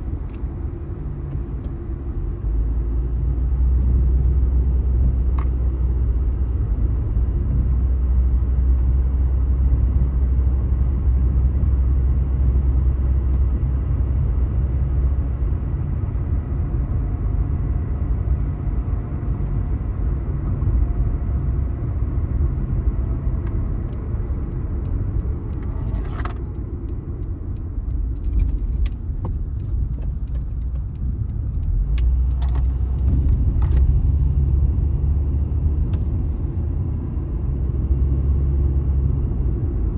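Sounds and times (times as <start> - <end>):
car cabin road rumble: 0.0 - 39.9
light clicks and rattles: 23.4 - 34.0.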